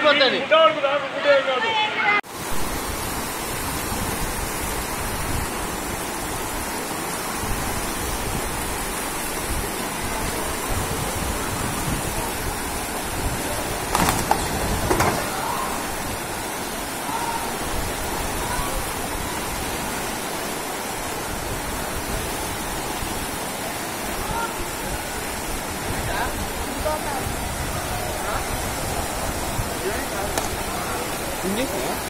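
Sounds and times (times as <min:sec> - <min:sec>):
floodwater rushing: 0:02.3 - 0:32.0
brief knocks: 0:13.9 - 0:15.4.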